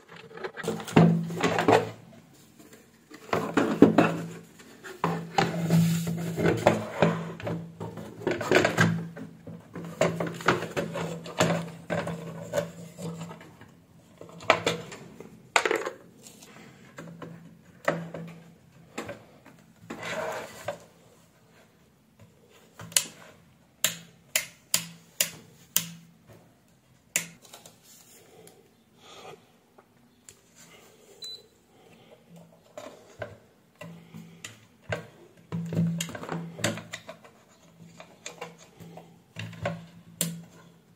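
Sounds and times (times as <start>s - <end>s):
plastic parts knocking and rattling: 0.0s - 16.2s, 16.8s - 20.9s, 32.3s - 40.9s.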